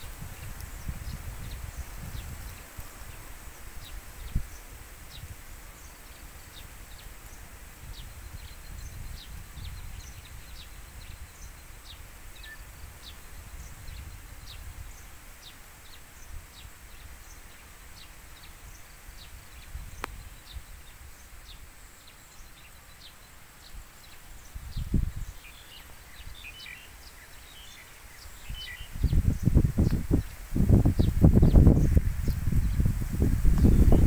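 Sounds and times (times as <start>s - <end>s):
wind buffeting microphone: 0.0s - 15.2s, 24.4s - 26.7s, 28.3s - 34.0s
small birds chirping: 0.0s - 34.0s.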